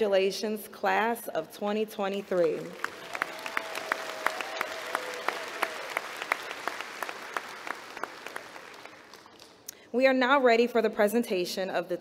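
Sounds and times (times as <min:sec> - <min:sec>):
crowd applause: 0:02.6 - 0:09.6.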